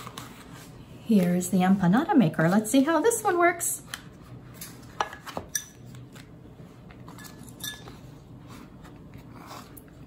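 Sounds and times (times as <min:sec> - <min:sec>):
kitchen utensils clicking and clinking: 0:07.1 - 0:08.0.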